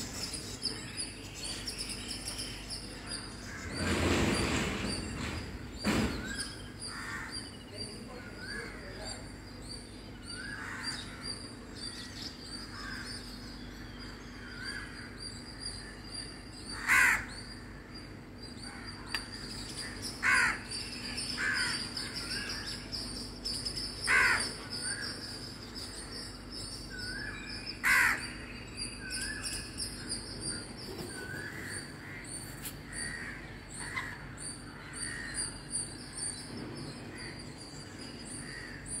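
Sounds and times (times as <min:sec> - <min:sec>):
crows cawing: 0:06.9 - 0:07.5, 0:10.4 - 0:11.3, 0:12.7 - 0:13.2, 0:16.7 - 0:17.9, 0:19.8 - 0:20.7, 0:21.3 - 0:22.8, 0:24.0 - 0:25.1, 0:27.1 - 0:28.3, 0:31.2 - 0:35.5.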